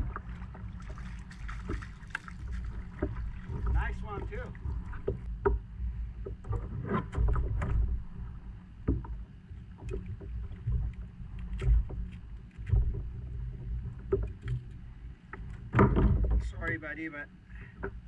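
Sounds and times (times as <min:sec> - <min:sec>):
choppy water against hull: 0:00.0 - 0:18.0
fish handling knocks and clicks: 0:15.3 - 0:16.8.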